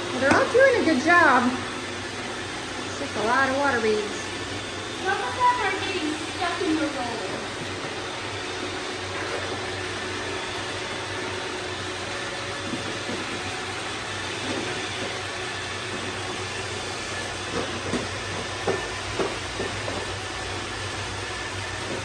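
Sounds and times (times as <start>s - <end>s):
robot vacuum whirring: 0.0s - 22.0s.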